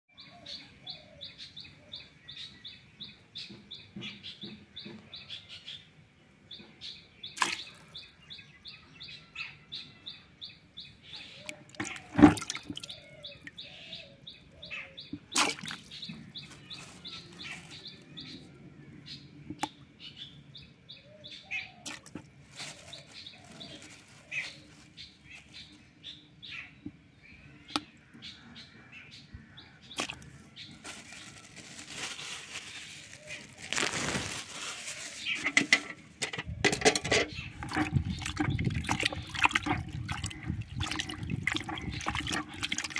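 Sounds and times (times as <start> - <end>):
tap water running and splashing: 11.5 - 13.5, 35.5 - 42.9
knocks on plastic basin: 11.8 - 12.9.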